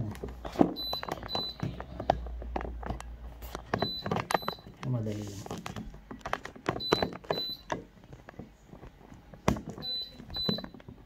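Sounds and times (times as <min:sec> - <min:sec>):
handling clicks and knocks: 0:00.0 - 0:11.0
heat press alarm beeps: 0:00.8 - 0:01.7, 0:03.8 - 0:04.7, 0:06.8 - 0:07.7, 0:09.8 - 0:10.7.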